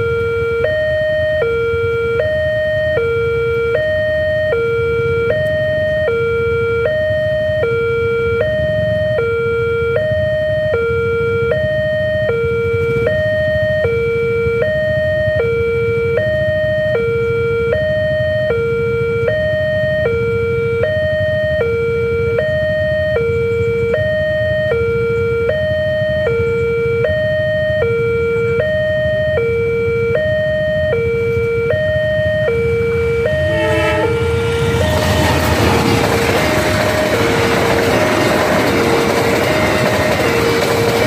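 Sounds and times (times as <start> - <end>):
level crossing two-tone alarm: 0.0 - 41.0
approaching train rush: 33.0 - 41.0.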